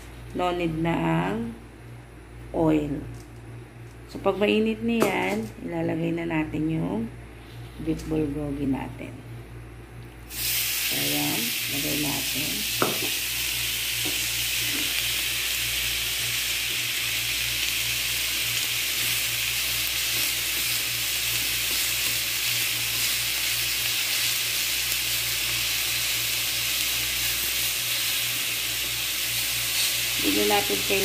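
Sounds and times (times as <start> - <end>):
steady low hum: 0.0 - 31.0
beef sizzling in frying pan: 10.3 - 31.0.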